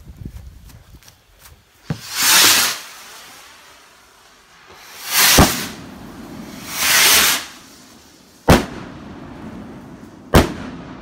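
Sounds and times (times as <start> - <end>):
rocket launch hiss: 1.8 - 10.7
firework bang: 4.7 - 7.6, 8.4 - 11.0.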